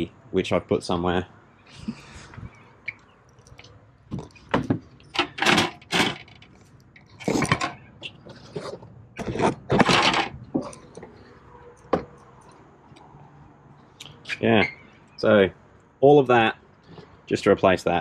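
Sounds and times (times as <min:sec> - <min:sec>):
hard car parts clattering and scraping: 0:03.4 - 0:13.1.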